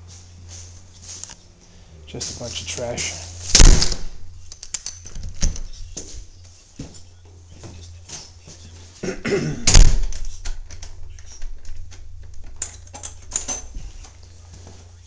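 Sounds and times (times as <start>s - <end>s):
steady low hum: 0.0s - 15.0s
loud thump: 3.5s - 4.2s, 9.6s - 10.1s.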